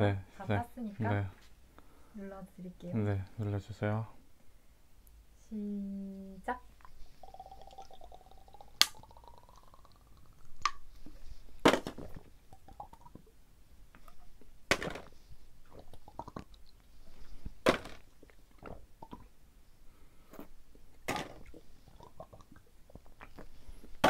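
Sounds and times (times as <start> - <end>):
sucking and gulping from bottle: 6.8 - 13.3, 15.6 - 19.4, 20.2 - 24.0.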